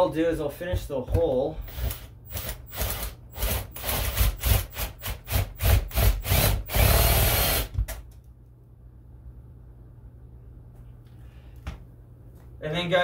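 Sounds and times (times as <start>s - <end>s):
power drill boring through wood: 1.6s - 7.7s.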